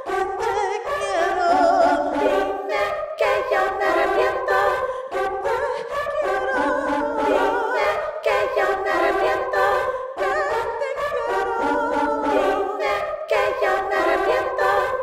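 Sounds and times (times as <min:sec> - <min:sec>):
choir-like vocals: 0:00.0 - 0:15.0
woman singing with vibrato: 0:00.0 - 0:15.0.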